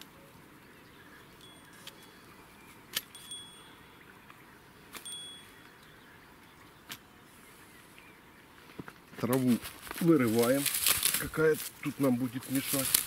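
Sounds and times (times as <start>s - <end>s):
bite alarm bell tinkling: 3.1s - 3.9s, 5.0s - 5.6s.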